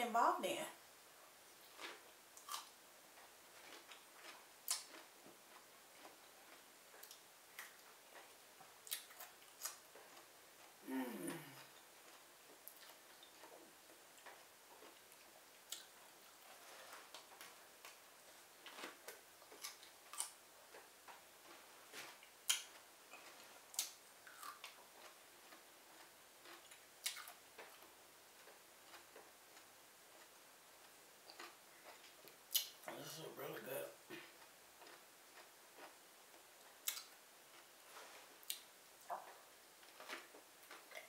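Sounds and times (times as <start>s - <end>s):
person chewing with lip smacks: 1.6s - 2.7s, 3.6s - 10.8s, 11.4s - 13.6s, 14.2s - 16.0s, 18.7s - 30.3s, 34.2s - 36.0s, 36.7s - 37.6s.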